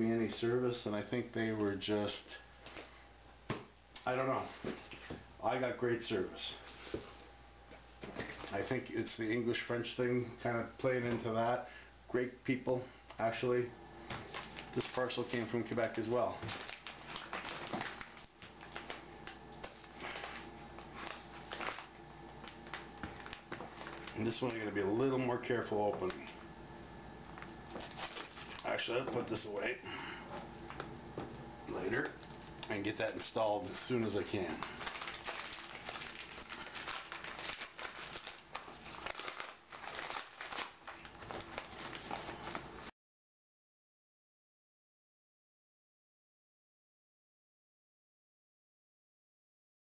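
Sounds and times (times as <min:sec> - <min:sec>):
paper wrapping crackling: 0:14.2 - 0:24.8, 0:27.4 - 0:29.5, 0:31.8 - 0:42.9.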